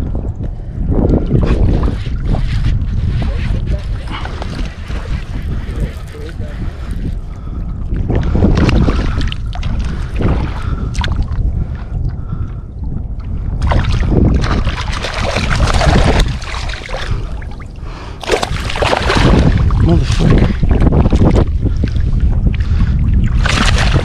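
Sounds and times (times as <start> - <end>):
wind buffeting microphone: 0.0 - 24.0
fish splashing at surface: 18.2 - 19.6, 23.4 - 24.0.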